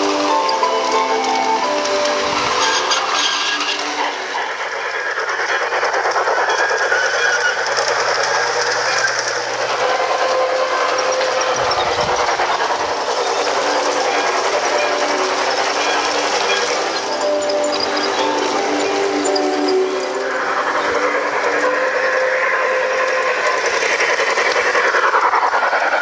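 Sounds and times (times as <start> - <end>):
dense hiss of steam: 1.6 - 26.0.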